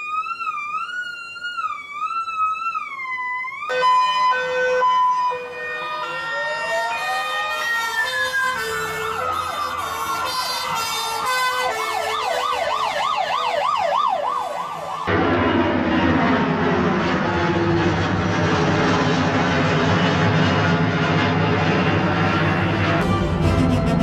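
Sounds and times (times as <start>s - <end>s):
fast yelp siren: 0.0s - 15.1s
two-tone siren: 0.0s - 24.0s
wailing siren: 0.0s - 24.0s.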